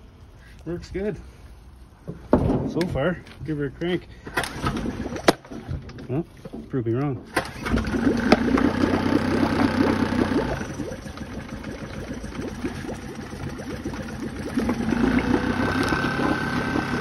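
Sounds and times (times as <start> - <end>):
outboard motor running: 7.3 - 17.0.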